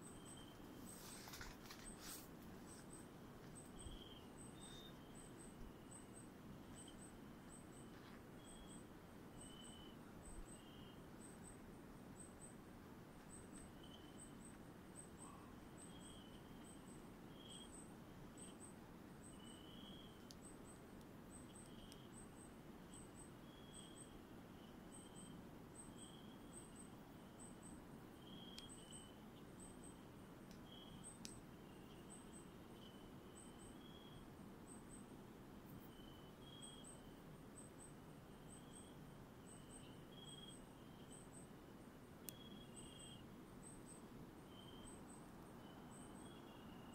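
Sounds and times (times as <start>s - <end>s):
insects chirping: 0.0s - 12.6s, 13.2s - 46.9s
low background hiss: 0.0s - 46.9s
light ticks: 20.2s - 22.1s, 30.5s - 32.0s.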